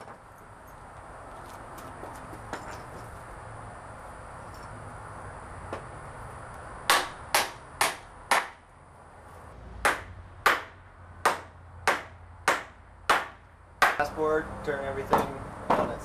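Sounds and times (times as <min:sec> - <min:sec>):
hammer striking a nail: 0:06.9 - 0:08.6, 0:09.8 - 0:14.1, 0:15.1 - 0:16.0.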